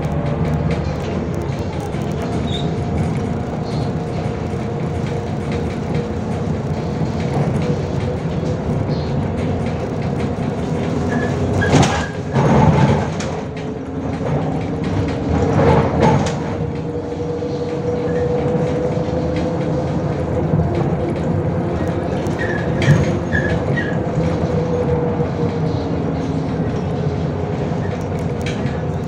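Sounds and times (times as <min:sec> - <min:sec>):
bus diesel engine drone: 0:00.0 - 0:29.0
bus body rattling knocks: 0:00.2 - 0:16.9.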